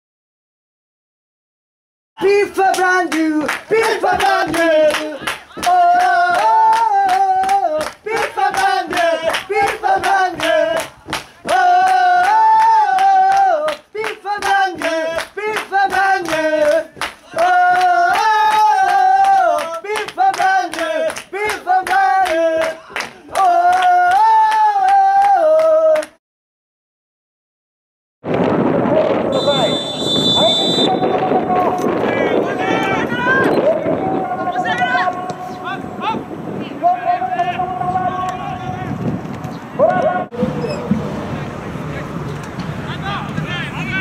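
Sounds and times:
rhythmic clapping: 2.6 - 26.2
group chanting in unison: 3.5 - 26.1.

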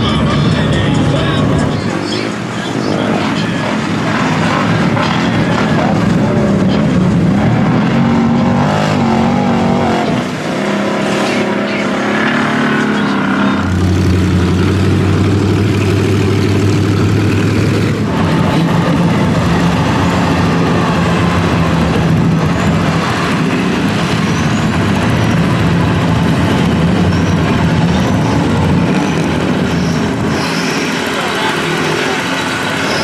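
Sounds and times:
off-road vehicle engines running: 0.0 - 33.0.

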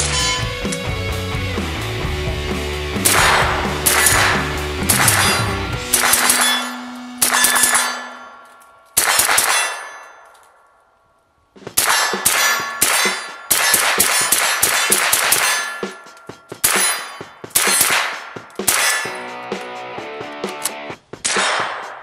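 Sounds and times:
background music: 0.0 - 8.4, 11.6 - 22.0
suppressed gunshots with metallic ring: 3.0 - 10.6, 11.7 - 19.3, 21.2 - 22.0.

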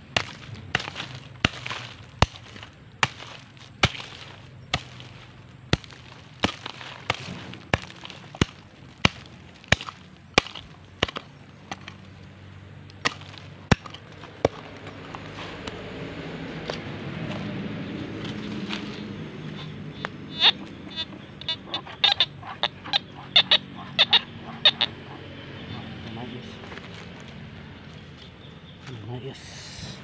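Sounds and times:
hand hoe chopping into soil: 0.0 - 12.1, 12.9 - 15.8
low hum: 0.0 - 28.6.

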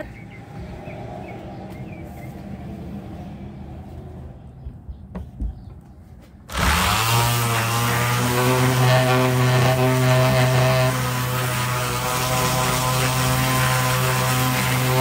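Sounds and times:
electric sander whining: 6.5 - 15.0.

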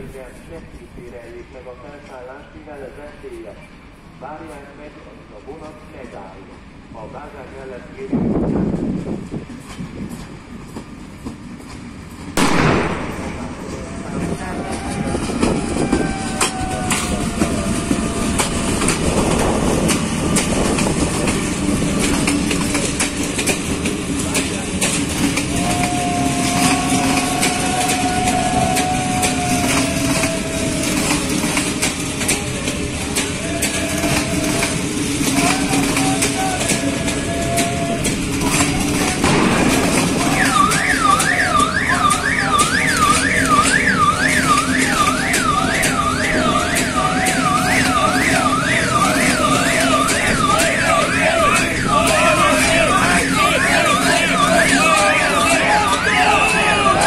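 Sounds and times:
train wheels clicking over rail joints: 5.5 - 57.0
crowd chanting and shouting: 12.5 - 23.4, 24.6 - 43.8, 44.4 - 57.0
high wheel squeal: 25.0 - 39.3, 40.1 - 57.0
siren sweeping up and down: 40.1 - 57.0.

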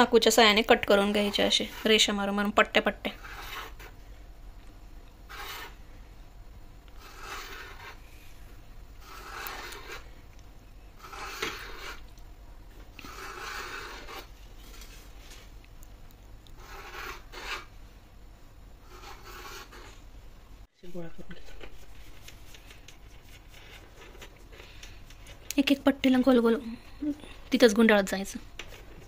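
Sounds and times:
knife cutting through dough: 5.3 - 5.8, 7.0 - 8.0, 9.0 - 10.1, 11.0 - 12.1, 13.0 - 14.9, 16.5 - 17.7.

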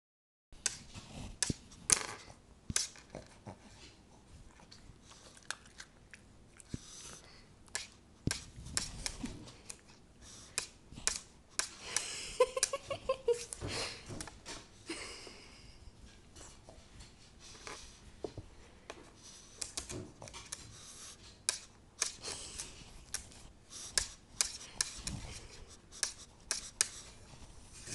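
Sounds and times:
dog sniffing: 19.1 - 27.9.

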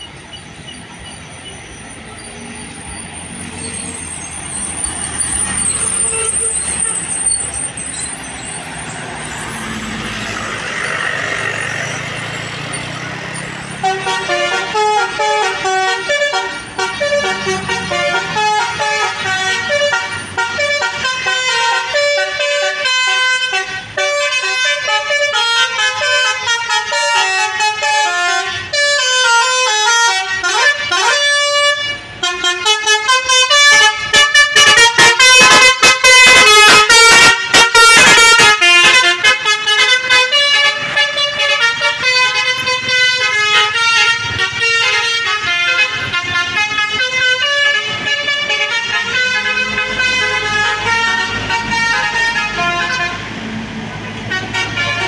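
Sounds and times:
bus multi-tone horns playing melody: 0.0 - 55.0.

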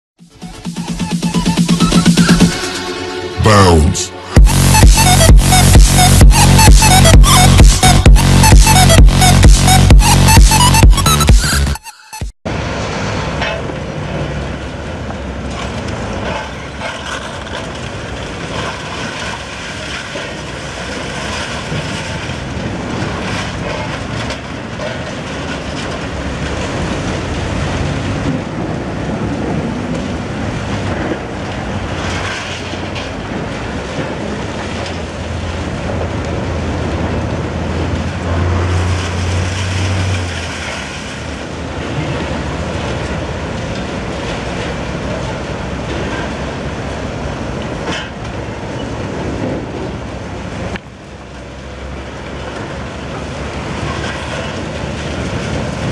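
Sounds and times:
excavator engine and hydraulics hum: 22.4 - 55.9.

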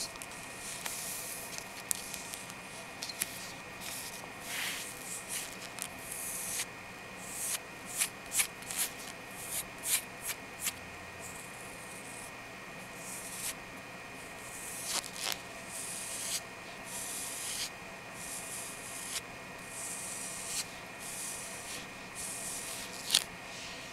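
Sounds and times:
fingernails scratching skin: 0.6 - 10.8, 13.2 - 13.6, 14.5 - 16.4, 17.0 - 23.3.

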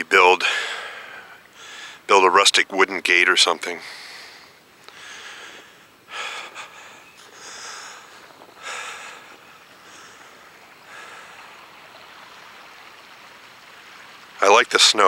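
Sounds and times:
footsteps crunching in snow: 7.9 - 8.6.

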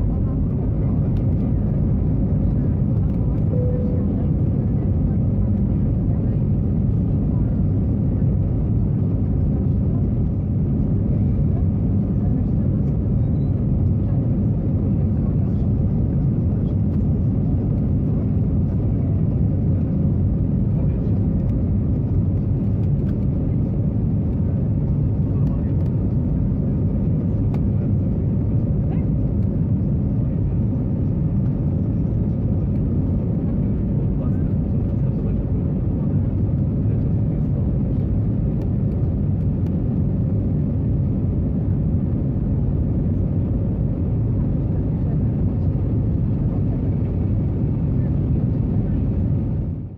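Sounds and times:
aircraft engines rumbling: 0.0 - 49.9
airflow over fuselage: 0.0 - 49.9.

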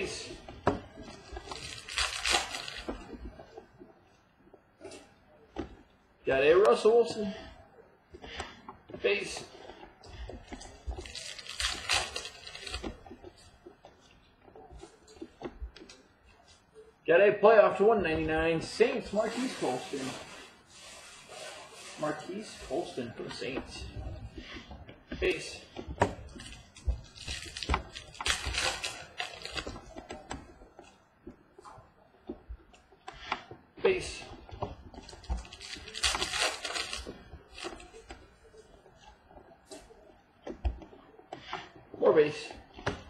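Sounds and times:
crinkly wrapper rustling: 0.0 - 3.9, 9.3 - 16.7, 19.0 - 32.3, 34.2 - 40.6.

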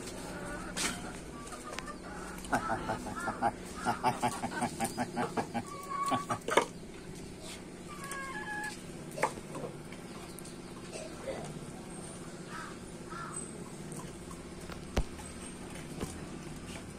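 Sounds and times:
chicken drawn-out calls: 0.0 - 6.8, 7.4 - 9.7, 12.4 - 14.3
chickens clucking: 0.0 - 16.9.

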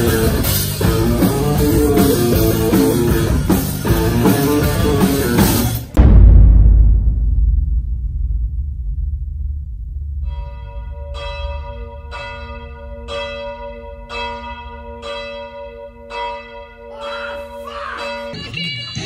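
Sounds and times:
steady low rumble: 5.9 - 16.1
bell tolling: 10.2 - 18.8.

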